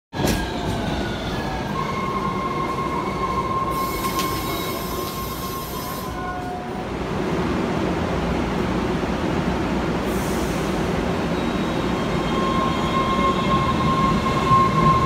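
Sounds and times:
subway train rumble: 0.1 - 15.0
train brakes squealing: 0.5 - 6.5, 10.2 - 15.0.

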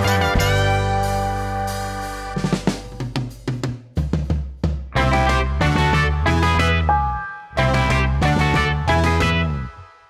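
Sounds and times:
drum fill: 0.0 - 6.2.

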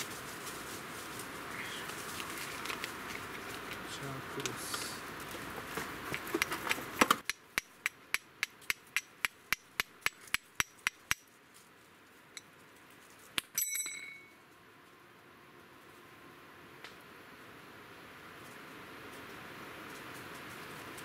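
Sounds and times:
fire striker clinking on flint: 7.2 - 11.3.

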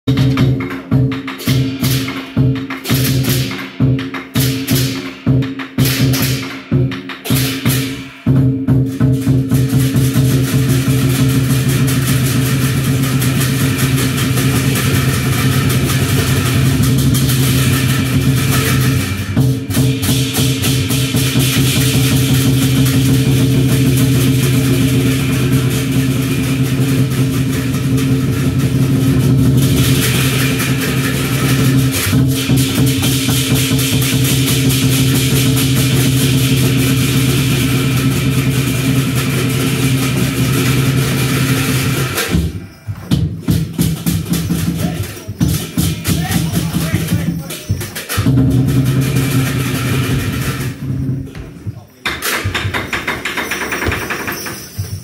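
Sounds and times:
drum beaten in fast rhythm: 0.0 - 55.0
clashing cymbals: 0.1 - 51.4.

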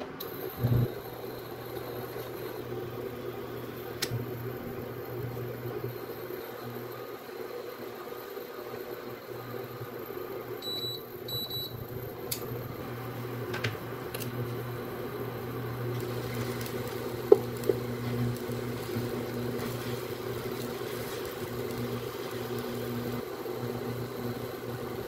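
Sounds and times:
induction cooktop humming: 0.0 - 25.0
beef cooking in frying pan: 12.8 - 25.0.

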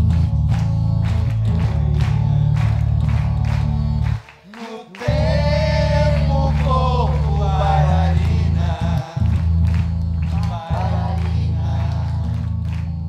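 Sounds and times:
deep bass line: 0.0 - 4.2, 5.1 - 13.0
person singing with wavering voice: 4.5 - 9.3.

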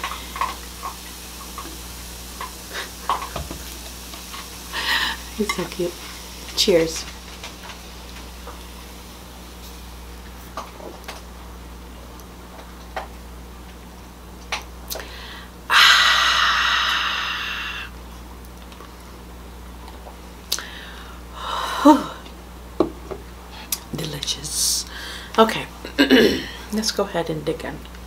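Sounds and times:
woman's breathy exhale: 15.0 - 17.9.

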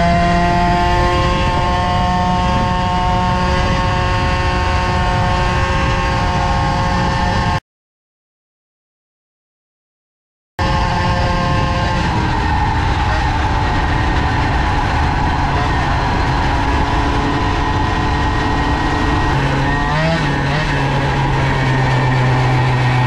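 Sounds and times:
moped engine running: 10.7 - 23.0.

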